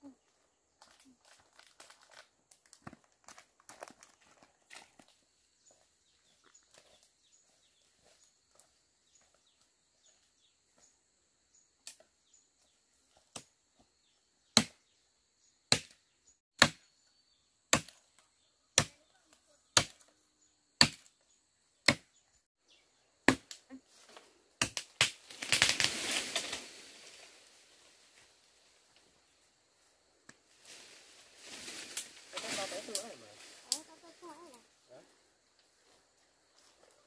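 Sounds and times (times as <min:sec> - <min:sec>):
blade chopping tree trunk: 0:14.5 - 0:14.8, 0:15.7 - 0:16.0, 0:16.6 - 0:16.9, 0:17.7 - 0:18.0, 0:19.8 - 0:20.1, 0:20.8 - 0:21.1, 0:21.8 - 0:22.2, 0:23.2 - 0:23.6, 0:24.6 - 0:26.0
crash of falling tree branches: 0:25.0 - 0:28.0, 0:30.6 - 0:33.7.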